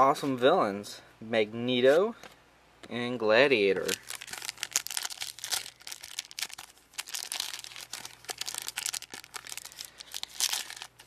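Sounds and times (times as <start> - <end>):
foil wrapper crinkling: 3.8 - 11.0.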